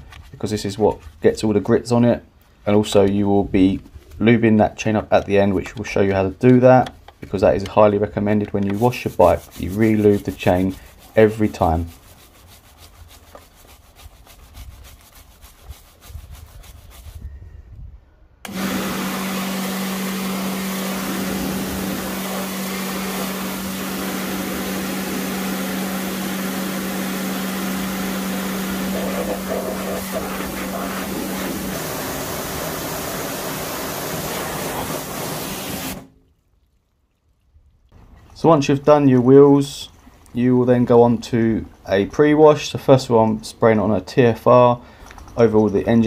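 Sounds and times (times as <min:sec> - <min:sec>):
stiff brush scrubbing: 0:07.1 - 0:17.4, 0:18.5 - 0:36.0
pressure washer hum: 0:18.4 - 0:36.1
pressure washer spray hiss: 0:18.5 - 0:36.0.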